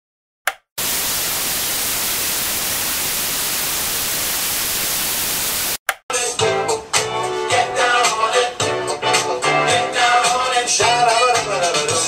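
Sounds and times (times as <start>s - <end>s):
tv static hiss: 0.8s - 5.8s.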